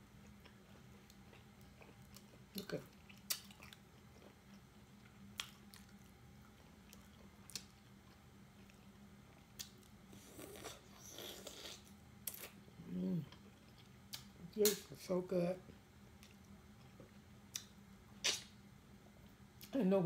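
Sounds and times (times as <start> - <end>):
wet sucking and chewing: 9.6 - 12.6, 17.5 - 18.5.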